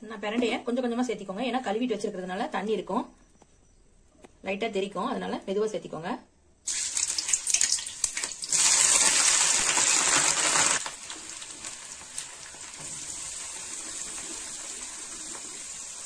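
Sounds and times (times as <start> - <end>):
stems frying in hot oil: 6.7 - 16.0.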